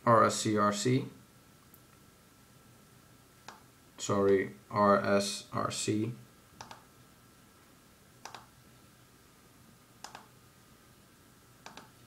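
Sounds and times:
mouse button clicks: 0:06.6 - 0:06.8, 0:08.2 - 0:08.5, 0:10.0 - 0:10.3, 0:11.6 - 0:11.9.

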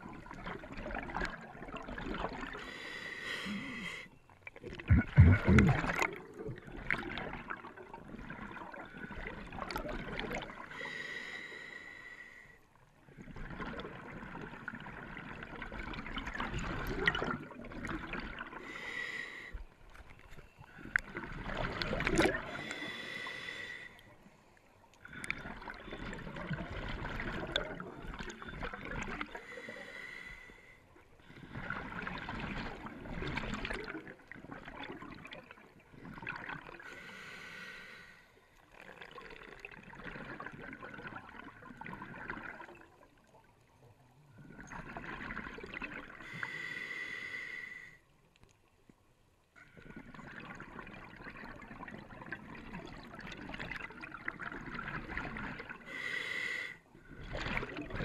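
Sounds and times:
regulator bubbling underwater: 0:00.0 - 0:02.6, 0:04.5 - 0:10.8, 0:13.2 - 0:18.8, 0:20.6 - 0:22.9, 0:25.0 - 0:29.8, 0:38.8 - 0:43.5, 0:44.4 - 0:46.3, 0:49.7 - 0:55.9, 0:57.0 - 0:58.0.

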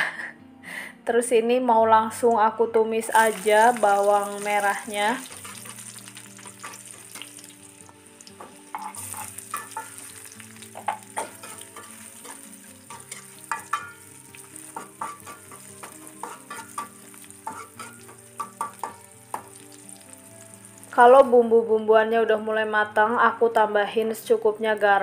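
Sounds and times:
vegetables sizzling in hot oil: 0:03.1 - 0:21.1
metal spatula scraping a wok: 0:05.2 - 0:07.3, 0:11.2 - 0:14.1, 0:14.7 - 0:18.8.

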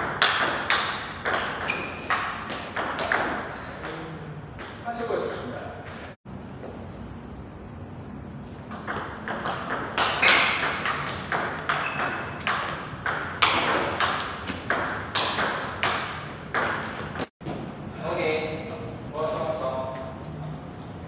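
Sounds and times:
table tennis ball pinging: 0:00.0 - 0:04.0, 0:08.7 - 0:17.3.

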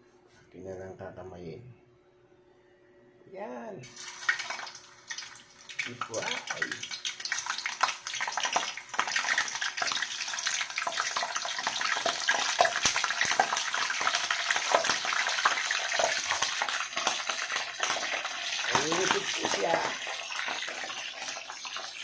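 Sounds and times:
deep-frying sizzle with pops: 0:03.9 - 0:22.0.

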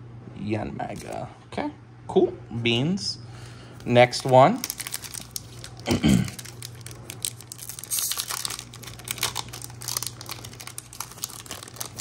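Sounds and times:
low steady hum: 0:00.0 - 0:12.0
foil pack crinkling: 0:03.8 - 0:12.0.

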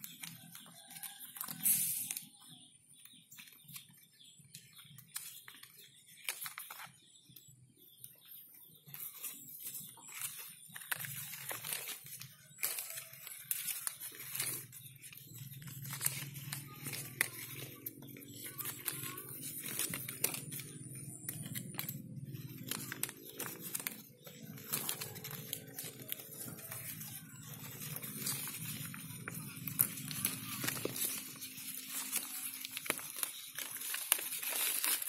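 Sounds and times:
leaves rustling and crackling: 0:08.9 - 0:35.0.

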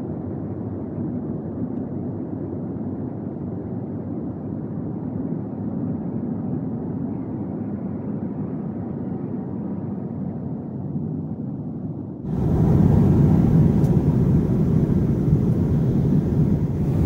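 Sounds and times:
airliner cabin engine rumble: 0:12.3 - 0:17.0.

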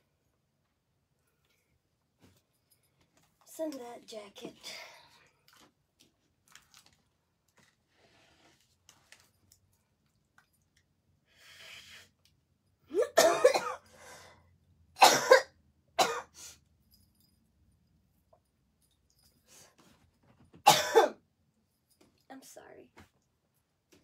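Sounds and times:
woman coughing: 0:12.9 - 0:13.8, 0:15.0 - 0:16.3, 0:20.7 - 0:21.2.

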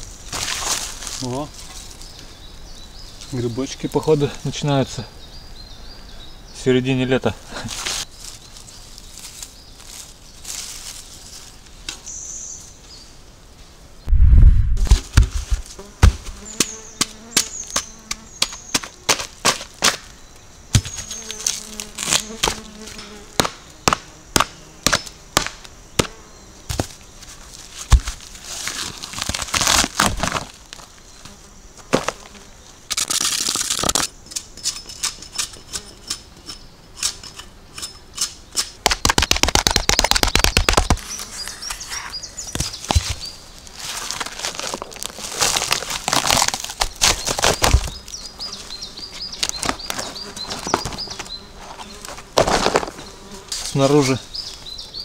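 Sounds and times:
birds chirping: 0:01.2 - 0:13.2, 0:16.3 - 0:19.0, 0:39.6 - 0:43.8, 0:46.8 - 0:55.0
log thudding on ground: 0:14.8 - 0:20.1, 0:20.7 - 0:21.1, 0:23.4 - 0:27.0, 0:27.8 - 0:30.8, 0:38.8 - 0:41.1, 0:42.5 - 0:48.0, 0:52.2 - 0:53.0
flies buzzing: 0:15.0 - 0:29.0, 0:29.6 - 0:33.7, 0:39.1 - 0:54.7
hatchet chopping wood: 0:23.4 - 0:26.1, 0:38.2 - 0:41.0
bark tearing: 0:28.0 - 0:30.5, 0:43.8 - 0:47.9.

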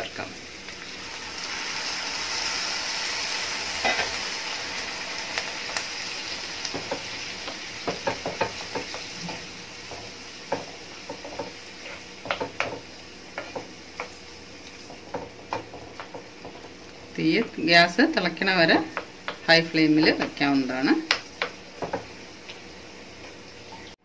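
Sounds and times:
water sizzling in hot pan: 0:00.0 - 0:24.0
wooden spoon knocking pan: 0:06.7 - 0:11.6, 0:12.2 - 0:14.2, 0:14.9 - 0:17.7, 0:18.7 - 0:22.1.

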